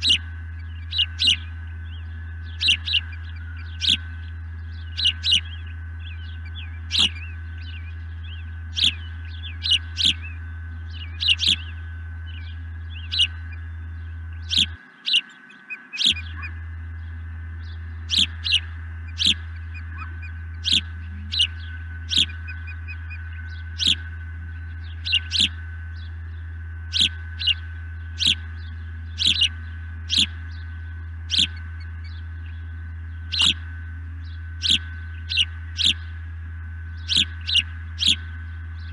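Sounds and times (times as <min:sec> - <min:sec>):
osprey calling: 0:00.0 - 0:38.9
steady low hum: 0:00.0 - 0:38.9.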